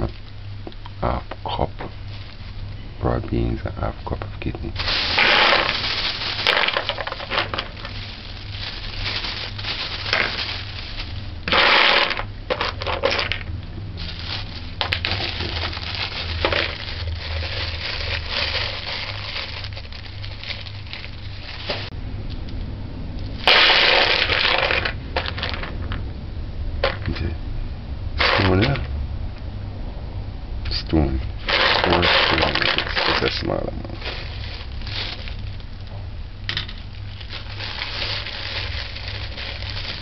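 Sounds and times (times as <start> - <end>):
dried beans rattling into bowl: 4.8 - 21.9, 23.5 - 26.0, 31.5 - 35.6.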